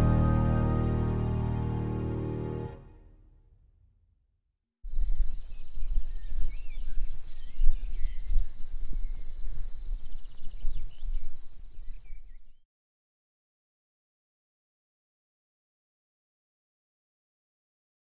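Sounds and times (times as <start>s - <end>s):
low rumble: 0.0s - 3.2s
crickets chirping: 4.9s - 12.6s.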